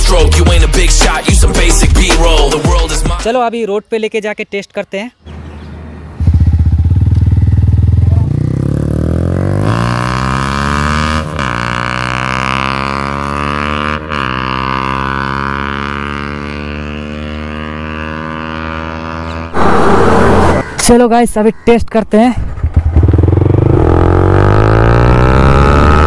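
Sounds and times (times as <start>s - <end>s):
motorcycle engine accelerating: 6.0s - 20.7s, 22.4s - 26.0s
loud rush of noise: 19.5s - 20.8s.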